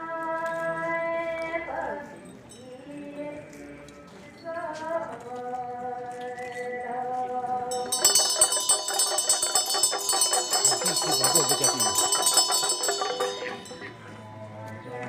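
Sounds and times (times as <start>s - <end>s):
clashing metal percussion: 7.7s - 14.1s
held pitched tone: 7.7s - 14.2s
rapid ringing bells: 7.7s - 14.4s.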